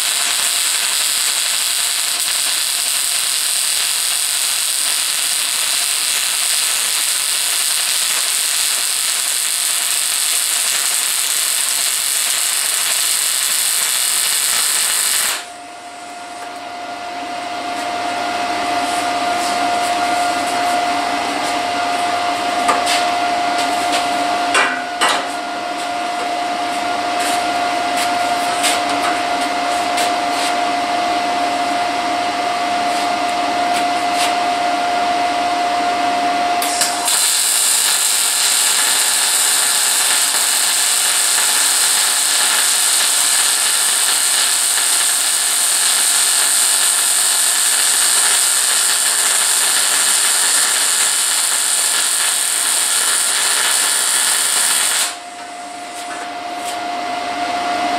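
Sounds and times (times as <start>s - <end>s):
arc welding sizzling hiss: 0.0s - 15.5s, 36.6s - 55.2s
steady whine: 0.0s - 57.9s.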